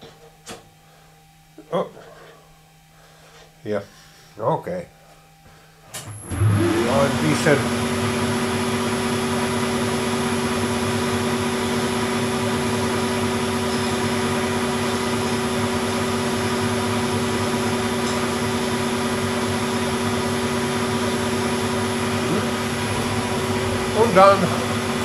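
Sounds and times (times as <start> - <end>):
lathe humming: 6.1 - 25.0.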